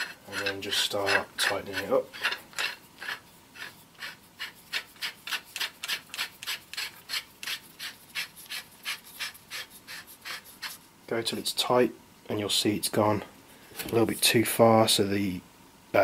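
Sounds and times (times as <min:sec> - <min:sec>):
barrel screwing rasping rub: 0:00.0 - 0:10.8.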